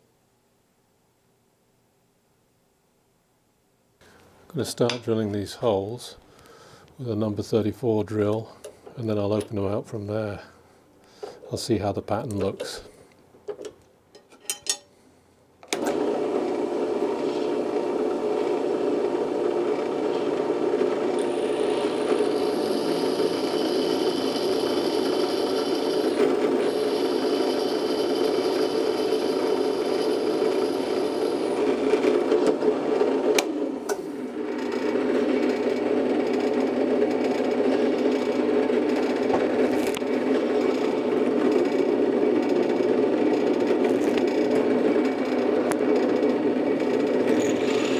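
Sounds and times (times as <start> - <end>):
drill press drilling steel: 19.7 - 33.4, 43.4 - 47.9
high whine: 21.2 - 33.4.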